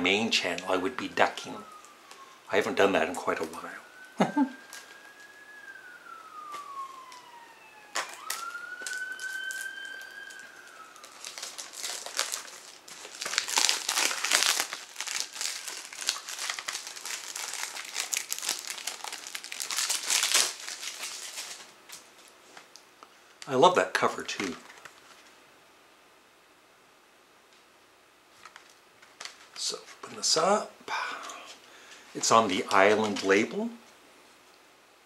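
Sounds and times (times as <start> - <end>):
emergency vehicle siren wailing: 0.0 - 21.6
plastic shrink-wrap crinkling: 8.0 - 23.5, 24.3 - 25.4, 28.3 - 30.0, 32.2 - 33.5.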